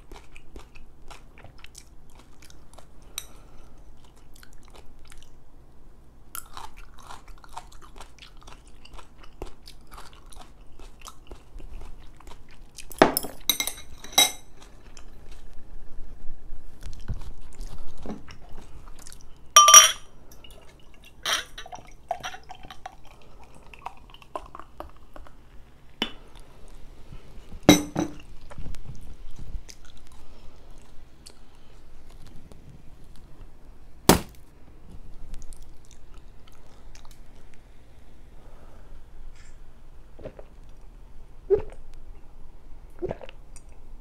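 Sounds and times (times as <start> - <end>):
glass clinks and knocks: 19.6 - 20.0, 27.7 - 28.2.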